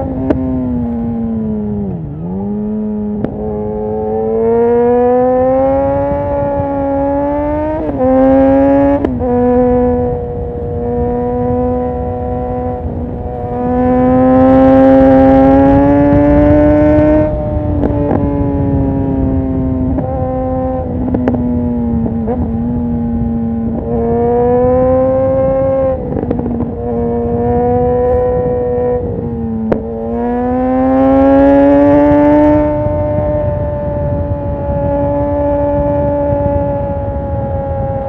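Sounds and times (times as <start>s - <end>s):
motorcycle engine revving: 0.0s - 38.0s.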